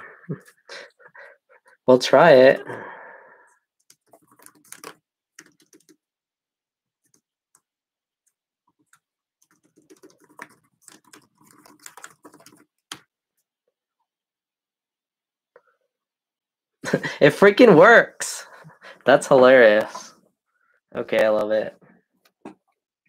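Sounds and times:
laptop keyboard typing: 0:03.8 - 0:06.0, 0:08.7 - 0:13.1.

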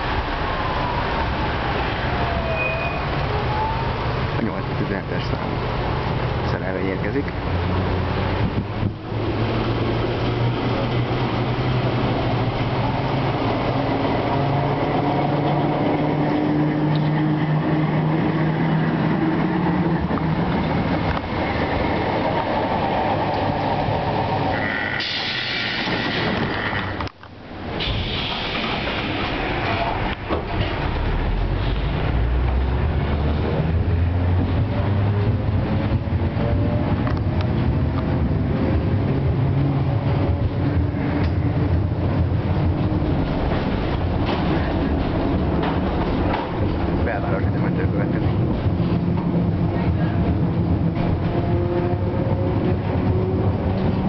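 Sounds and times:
steel wheels rumbling on rails: 0:00.0 - 0:54.0
tram low hum: 0:00.0 - 0:54.0
wheels clicking over rails: 0:40.1 - 0:54.0.

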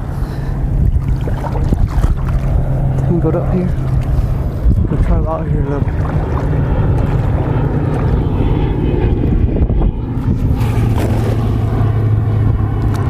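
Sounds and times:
wind buffeting microphone: 0:00.0 - 0:13.0
net splashing on water: 0:00.9 - 0:02.6, 0:10.5 - 0:12.1.

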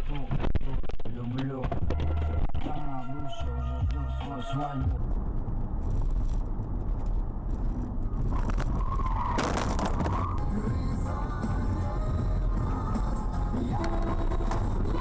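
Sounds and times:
engine and road rumble: 0:00.0 - 0:15.0.

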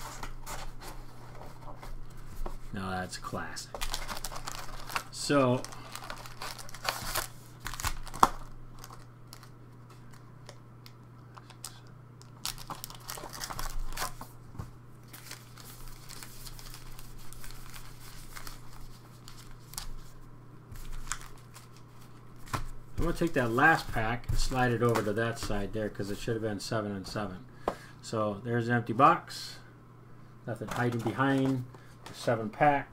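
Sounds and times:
foil packs crinkling: 0:03.8 - 0:10.2, 0:11.4 - 0:14.4, 0:15.0 - 0:20.2, 0:20.8 - 0:25.6.

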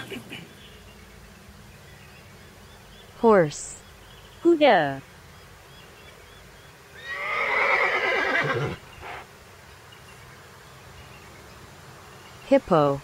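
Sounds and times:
horse neighing: 0:07.0 - 0:09.2.

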